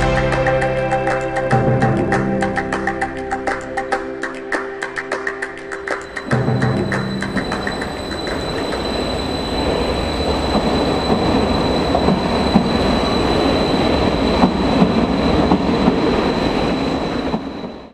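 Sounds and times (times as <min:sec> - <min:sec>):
high-pitched whine: 0:05.8 - 0:17.9
train wheels rumbling on rails: 0:05.9 - 0:17.9.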